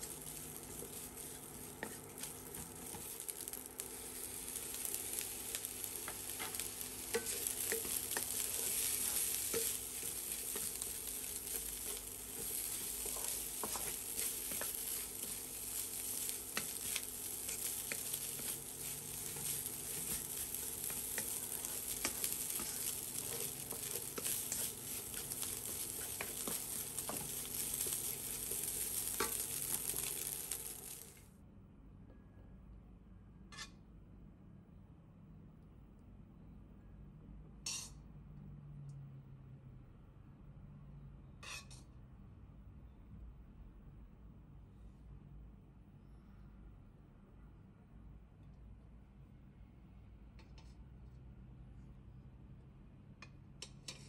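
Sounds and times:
wooden spatula tapping and scraping: 0.0s - 31.1s
rice sizzling in a wok: 0.0s - 31.3s, 37.7s - 37.9s, 53.1s - 54.0s.

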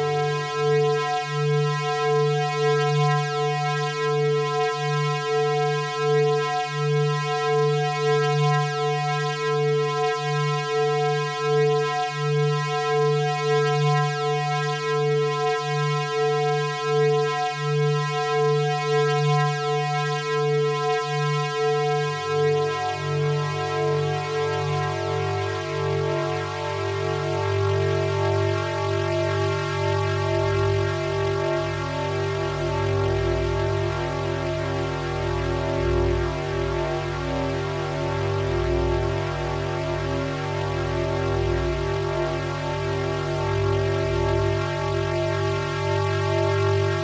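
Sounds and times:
dark ambient synthesizer drone: 17.8s - 47.0s.

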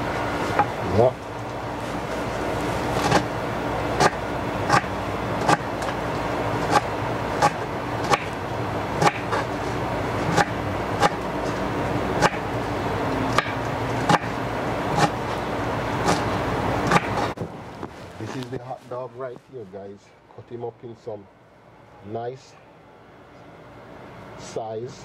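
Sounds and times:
low hum: 0.0s - 25.0s
knife chopping on cutting board: 4.0s - 5.7s, 6.6s - 8.4s, 9.0s - 9.5s, 10.2s - 11.2s, 12.2s - 12.4s, 13.3s - 14.3s, 14.9s - 15.2s, 16.9s - 17.2s.

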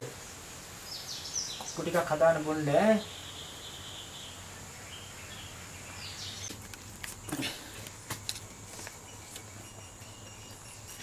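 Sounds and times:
faint bird chirps: 2.9s - 6.5s, 8.9s - 11.0s.

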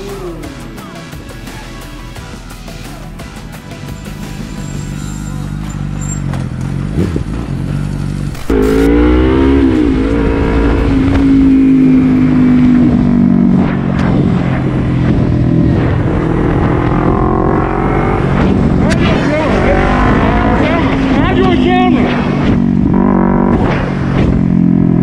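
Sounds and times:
motorcycle engine revving: 4.7s - 25.0s
low wind rumble: 8.2s - 24.6s.

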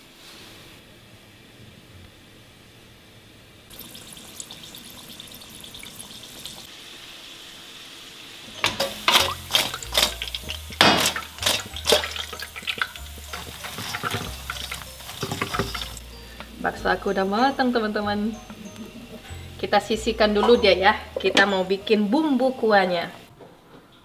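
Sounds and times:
food sizzling in hot oil: 3.7s - 16.3s
utensil clattering against pan: 8.6s - 16.0s, 20.4s - 21.8s.

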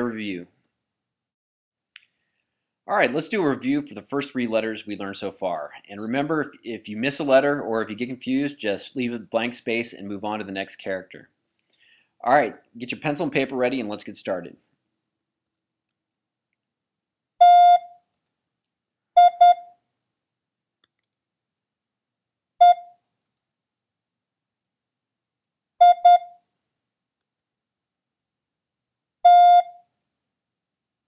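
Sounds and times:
morse code beeps: 17.4s - 18.0s, 19.2s - 19.7s, 22.6s - 22.9s, 25.8s - 26.4s, 29.3s - 29.8s.

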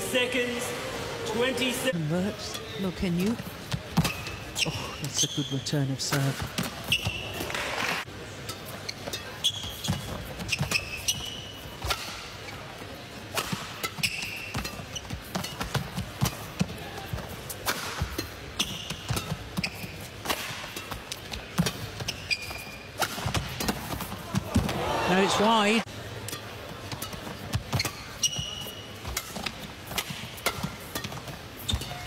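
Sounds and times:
shoes squeaking on court: 2.6s - 32.0s
rackets striking shuttlecock: 26.2s - 32.0s.

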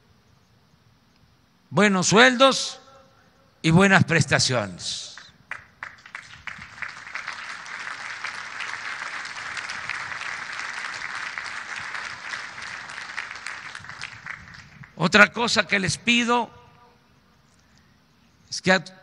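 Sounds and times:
crowd applauding: 5.2s - 15.9s.

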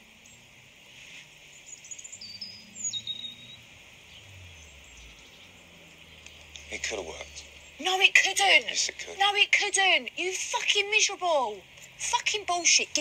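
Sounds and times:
steady hiss: 0.0s - 10.3s
small birds chirping: 0.0s - 13.0s.

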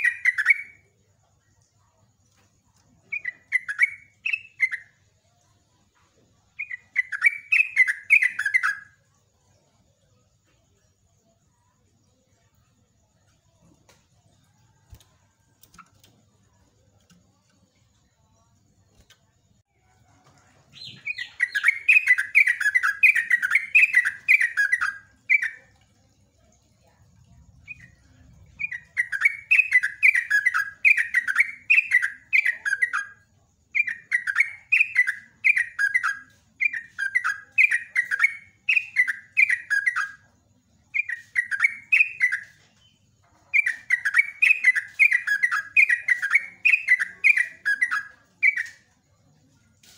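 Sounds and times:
bird singing: 0.0s - 5.5s, 6.4s - 49.4s.

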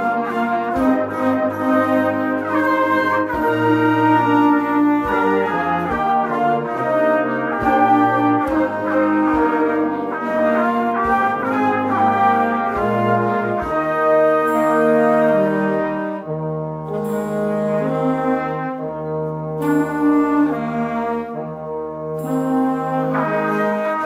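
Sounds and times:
wind band playing chords: 0.0s - 24.0s.

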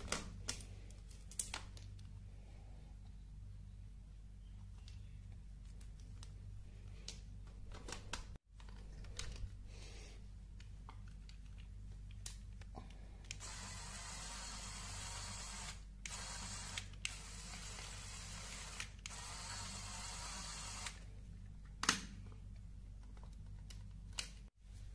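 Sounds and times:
small motor whirring gears: 13.4s - 21.0s.

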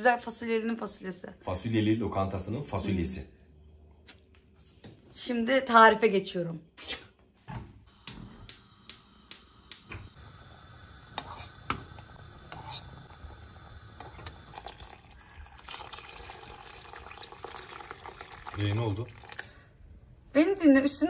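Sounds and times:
gas stove igniter clicking: 7.9s - 12.7s
pot bubbling at the boil: 10.1s - 19.8s
water pouring into pot: 12.6s - 19.7s.

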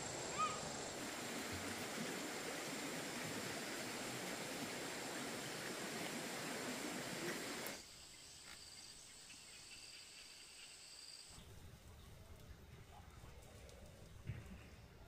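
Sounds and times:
insects trilling: 0.0s - 1.5s, 5.7s - 11.4s
rushing water: 0.0s - 7.8s.

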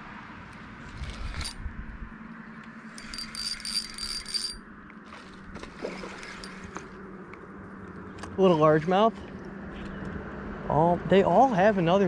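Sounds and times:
steady low hum: 0.0s - 12.0s
reel clicks: 0.5s - 1.6s, 2.6s - 7.4s
fishing reel spool whirring: 0.5s - 9.1s.

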